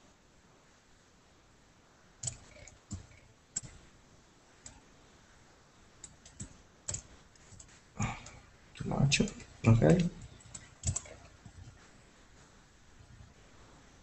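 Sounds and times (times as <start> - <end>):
mouse and keyboard clicks: 2.2 - 3.9, 6.0 - 7.8, 9.2 - 11.8.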